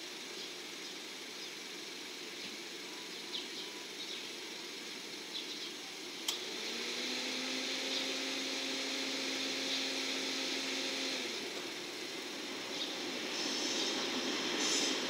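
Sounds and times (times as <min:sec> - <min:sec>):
freight train rumble: 0:11.4 - 0:15.0.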